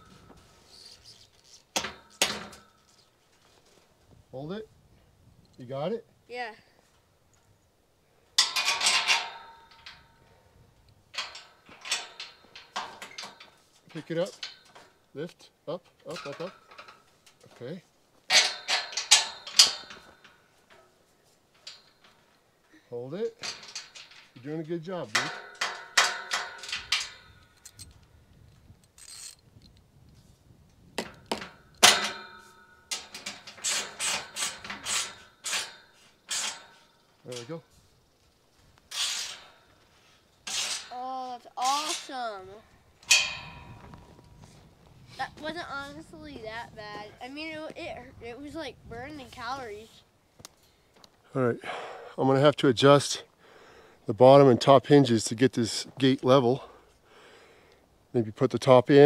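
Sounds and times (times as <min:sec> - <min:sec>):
metal gate clanking and rattling: 0:01.6 - 0:03.1, 0:08.4 - 0:10.4, 0:11.1 - 0:15.1, 0:15.8 - 0:28.0, 0:31.0 - 0:37.8, 0:38.9 - 0:44.4
metal tool clinking on metal: 0:08.4 - 0:10.2, 0:11.2 - 0:15.0, 0:16.0 - 0:17.7, 0:18.3 - 0:22.3, 0:23.3 - 0:27.9, 0:31.0 - 0:37.7, 0:43.0 - 0:43.8.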